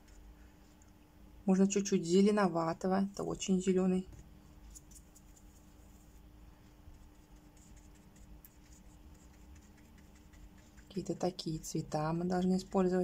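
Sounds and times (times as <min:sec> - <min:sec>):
low steady hum: 0:00.0 - 0:13.0
paintbrush scratching: 0:04.4 - 0:13.0.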